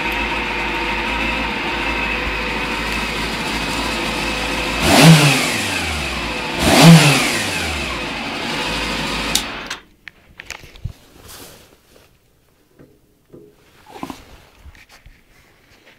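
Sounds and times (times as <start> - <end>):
motorcycle engine revving and idling: 0.0 - 9.8
faint clicks and knocks: 12.0 - 13.6.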